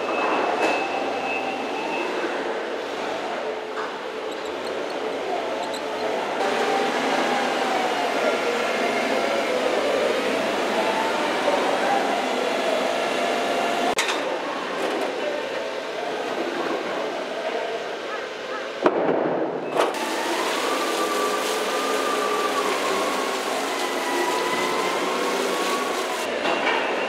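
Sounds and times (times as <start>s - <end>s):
crane machinery noise: 2.8s - 8.8s.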